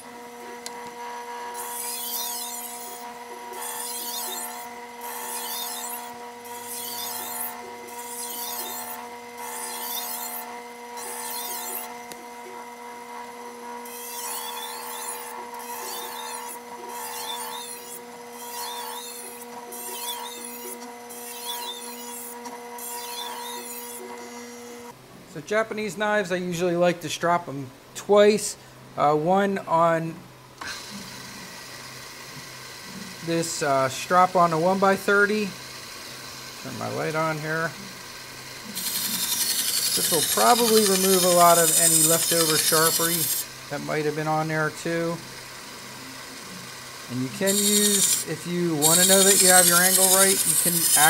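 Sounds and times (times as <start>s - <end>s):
sharpening machine humming: 0.0s - 25.0s, 30.6s - 51.0s
knife grinding on wheel: 1.0s - 12.1s, 13.8s - 24.4s, 31.9s - 51.0s.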